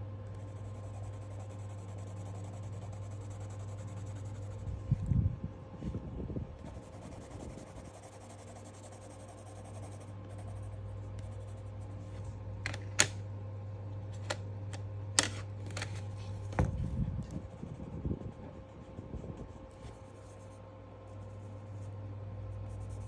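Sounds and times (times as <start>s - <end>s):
steady low hum: 0.0s - 23.0s
pencil scratching on paper: 0.3s - 4.8s, 6.6s - 12.3s, 22.6s - 23.0s.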